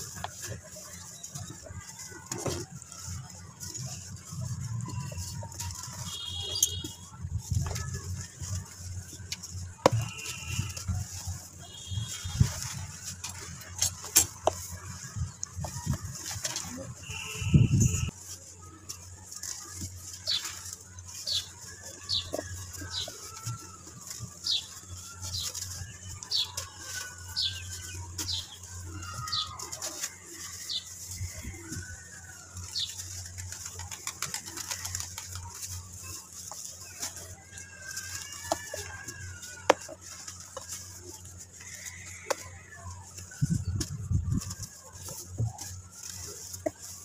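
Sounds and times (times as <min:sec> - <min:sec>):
birds chirping: 0:00.0 - 0:07.1, 0:19.6 - 0:39.4
birds wavering calls: 0:20.3 - 0:39.4.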